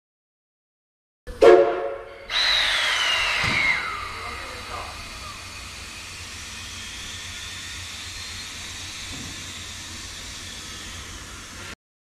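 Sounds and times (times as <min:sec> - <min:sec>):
steam hissing: 0:02.3 - 0:11.8.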